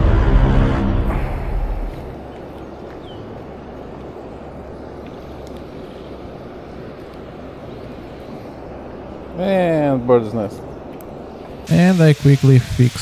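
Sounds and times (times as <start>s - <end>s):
faint ticks: 5.0s - 5.7s.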